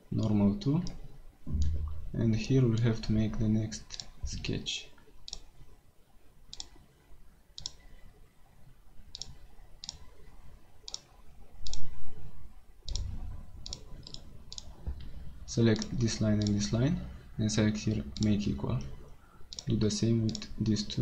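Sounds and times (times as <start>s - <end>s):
low rumble: 1.5s - 2.3s.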